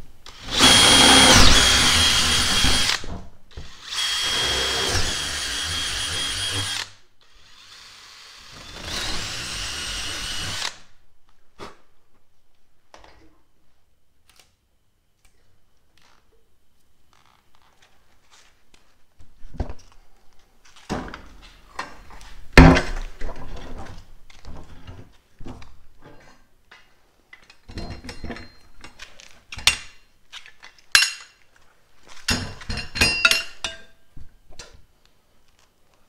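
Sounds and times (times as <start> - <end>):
metal brackets clinking on wood: 32.3 - 33.9.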